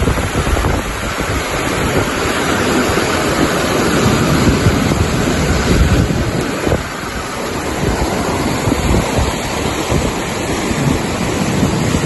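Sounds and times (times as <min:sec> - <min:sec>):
river rushing: 0:00.0 - 0:12.0
wind gusting on microphone: 0:00.0 - 0:12.0.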